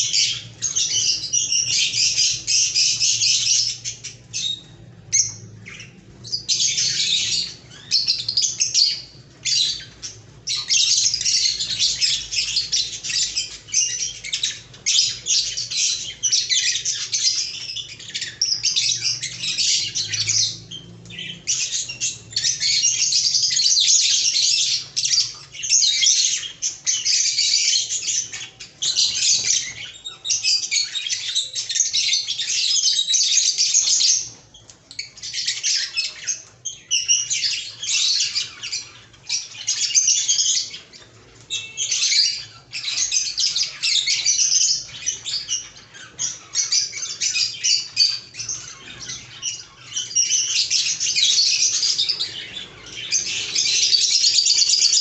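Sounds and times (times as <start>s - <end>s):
lovebirds chattering and squawking: 0.0s - 55.0s.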